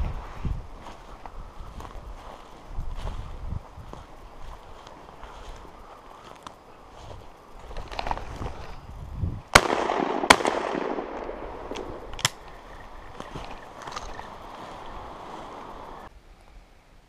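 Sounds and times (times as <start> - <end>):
footsteps through brush: 0.0 - 9.4, 11.3 - 16.1
shotgun shots: 9.5 - 12.5.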